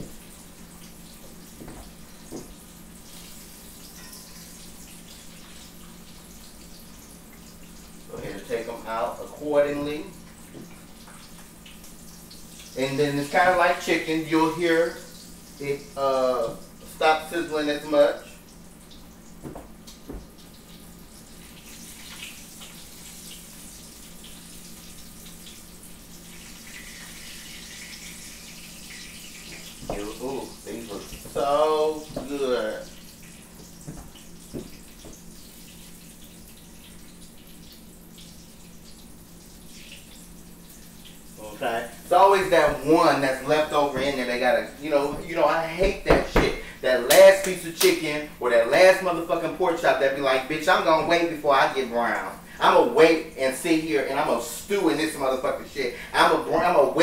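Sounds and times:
tomato slices sizzling in grease: 0.0 - 57.0
soft knocks: 19.4 - 20.3.

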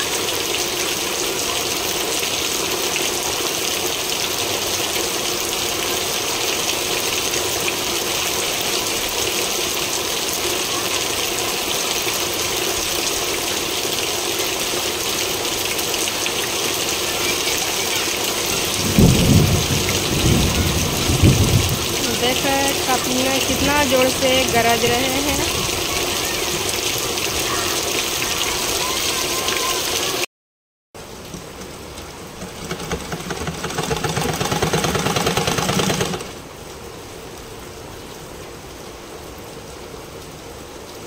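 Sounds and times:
heavy rain on metal roofs: 0.0 - 30.3, 31.0 - 41.0
thunder rumbling: 18.4 - 27.5.

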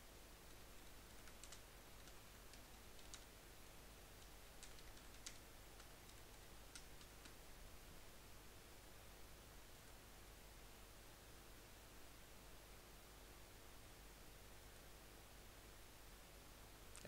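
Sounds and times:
computer keyboard keystrokes: 0.5 - 3.3, 4.2 - 7.4.

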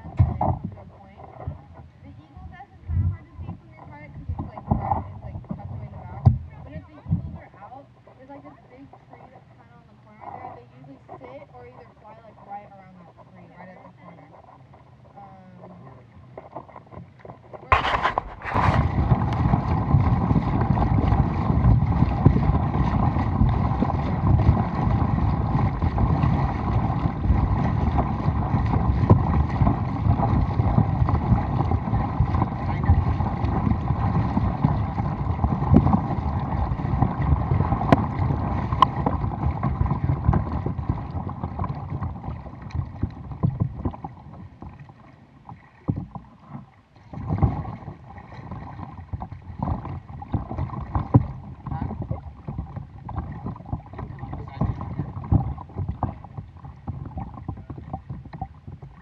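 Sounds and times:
wind buffeting microphone: 0.0 - 7.8, 17.6 - 44.0
paddle strokes splashing: 0.0 - 59.0
water rushing along hull: 0.0 - 59.0.

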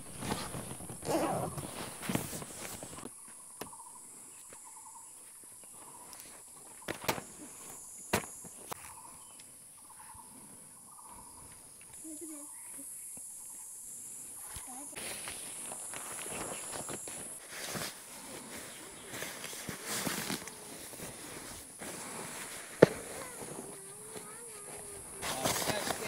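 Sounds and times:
rustling and handling noise: 0.0 - 3.1, 14.5 - 26.0.

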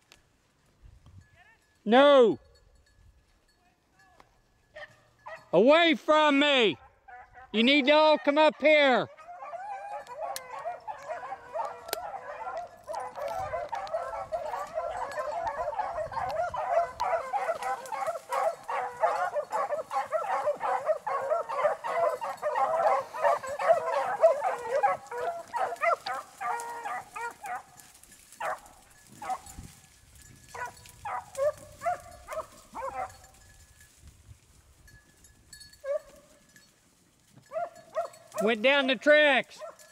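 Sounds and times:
beagles baying: 4.7 - 5.6, 6.8 - 33.4, 35.7 - 36.5, 37.3 - 39.9.

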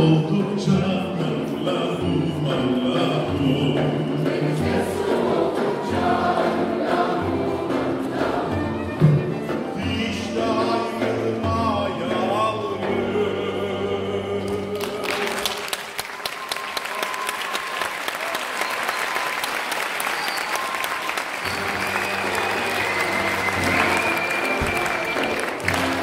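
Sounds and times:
cello: 0.0 - 15.1, 21.4 - 26.0
mixed choir singing: 0.0 - 15.7, 21.5 - 26.0
audience applause: 14.5 - 26.0.

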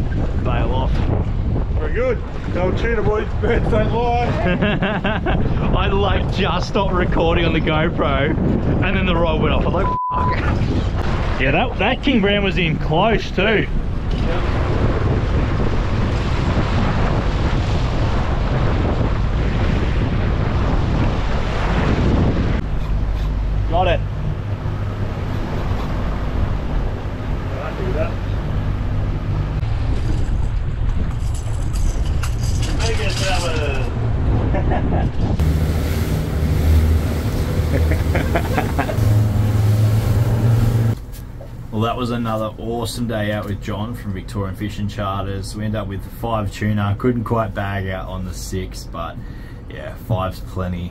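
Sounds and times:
wind buffeting microphone: 0.0 - 44.8
rush of boat wake: 10.4 - 31.2, 33.0 - 41.8
outboard motor running: 35.4 - 41.0.

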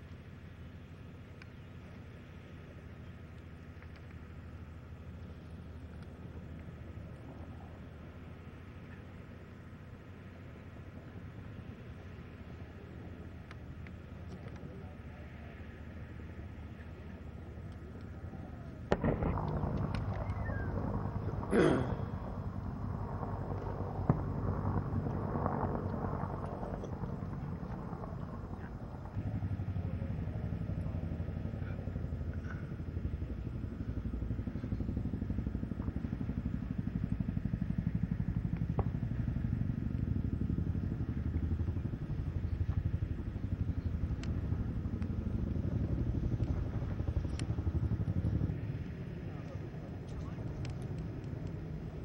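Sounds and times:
vehicle engine rumbling: 13.0 - 52.0.

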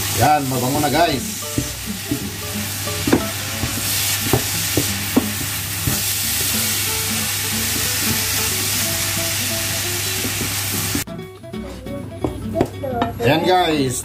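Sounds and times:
filling sizzling in a pan: 0.0 - 11.1.

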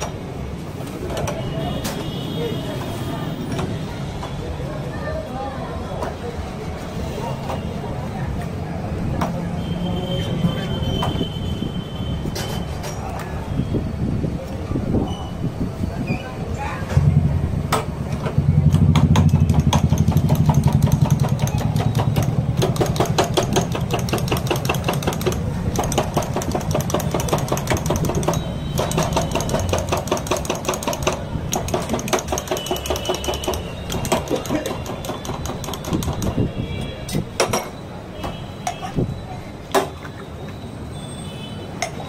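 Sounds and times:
fast rattling clatter: 18.9 - 36.4.

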